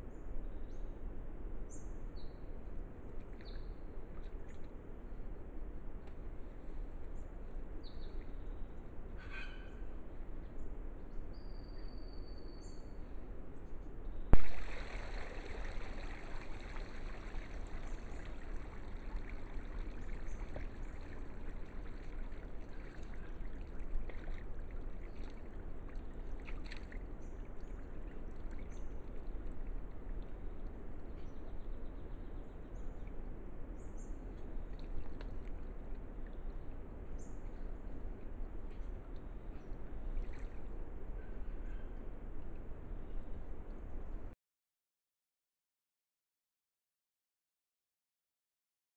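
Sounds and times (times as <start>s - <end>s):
water sloshing and trickling: 3.1s - 4.9s, 14.4s - 31.8s, 34.2s - 41.0s
faint bird chirps: 7.2s - 10.6s, 11.2s - 13.2s, 39.5s - 42.1s.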